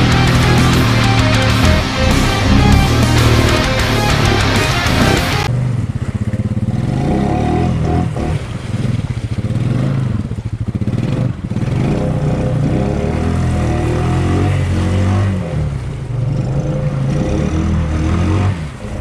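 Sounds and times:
music: 0.0s - 5.5s
atv engine revving: 0.0s - 19.0s.

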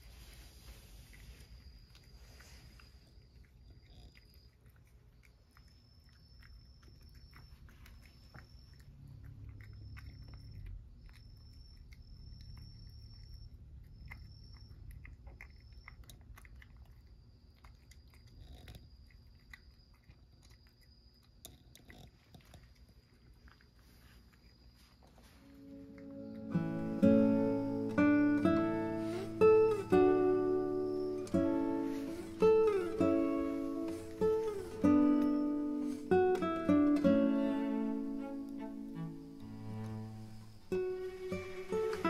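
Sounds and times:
cat crunching food: 0.9s - 24.7s, 25.6s - 28.4s.

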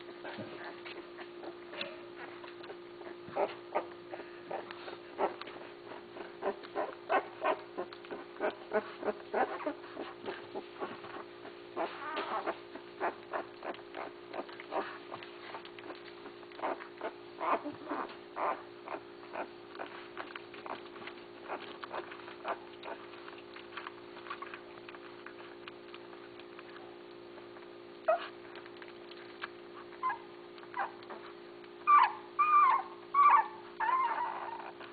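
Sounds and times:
steady low hum: 0.0s - 34.9s
puppies squeaking and whimpering: 0.2s - 16.0s, 16.6s - 20.8s, 21.4s - 23.1s, 28.0s - 28.4s, 29.8s - 34.9s.

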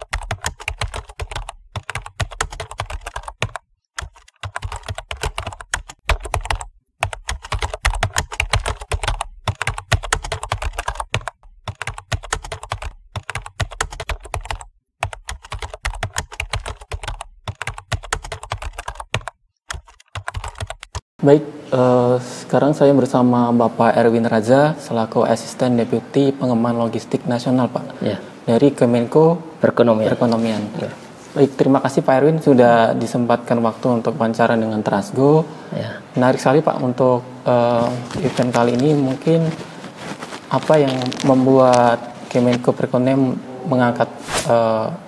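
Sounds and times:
keyboard typing: 0.0s - 21.0s, 37.8s - 42.7s.

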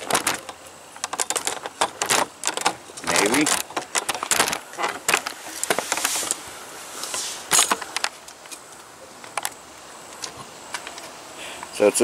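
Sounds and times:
short rustles: 1.3s - 8.9s.

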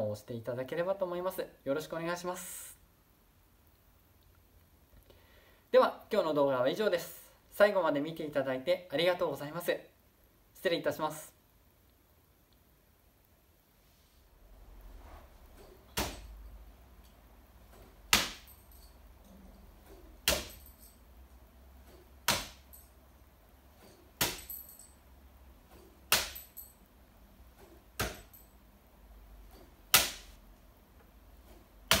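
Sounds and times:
spikes striking target board: 22.2s - 22.6s, 29.9s - 30.4s.

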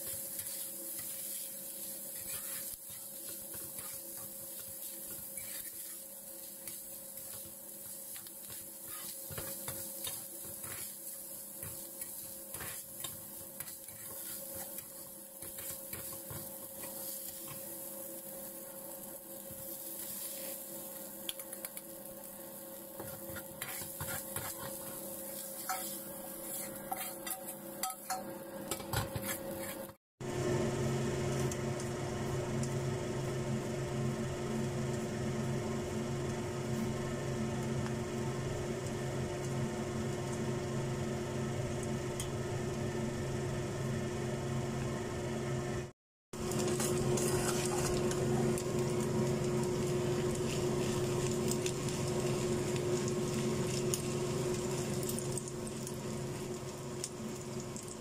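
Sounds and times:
rice sizzling: 0.0s - 45.4s, 46.3s - 58.0s
metal spatula scraping pan: 2.1s - 3.0s, 25.6s - 28.2s
spoon stirring in metal bowl: 23.0s - 29.9s.

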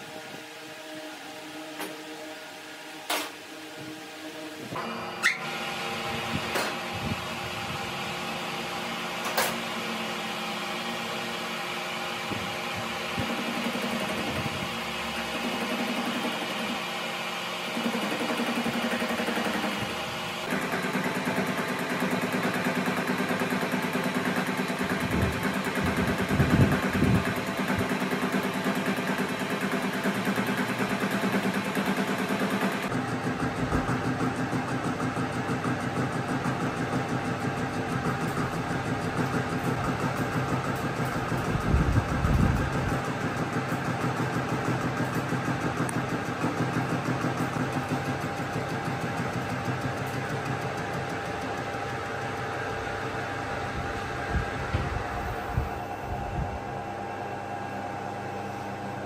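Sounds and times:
tool cutting steel: 4.3s - 7.2s.

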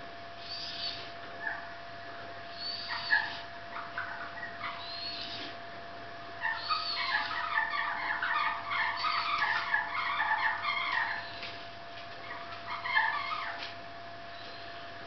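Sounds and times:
high animal chirps: 2.5s - 5.5s, 6.4s - 11.6s, 12.2s - 13.7s.

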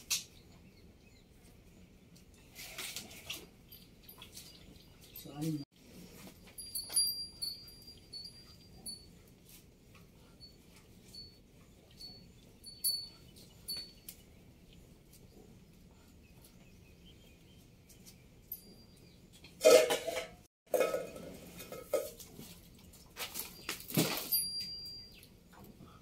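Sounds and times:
light metallic clinks ringing: 6.5s - 9.2s, 10.2s - 14.2s, 18.4s - 19.2s, 24.2s - 25.3s.

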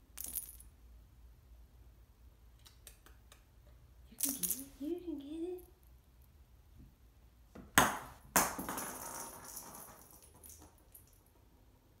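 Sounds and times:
jingle bell ball jingling: 4.2s - 4.9s.

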